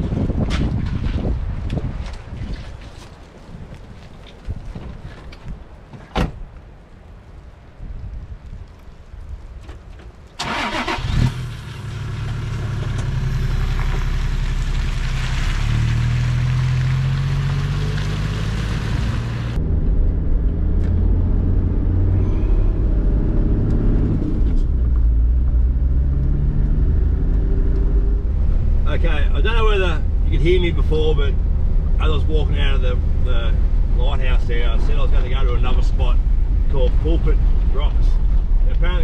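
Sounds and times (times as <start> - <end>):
engine and road rumble: 0.0 - 39.0
engine cranking and starting: 10.4 - 11.6
engine revving: 10.4 - 28.8.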